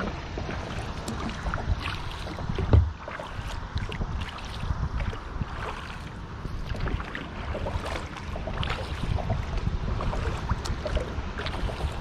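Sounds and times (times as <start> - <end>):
drips and small splashes: 0.0 - 12.0
water lapping against kayak hull: 0.0 - 12.0
dull thump: 2.5 - 3.0.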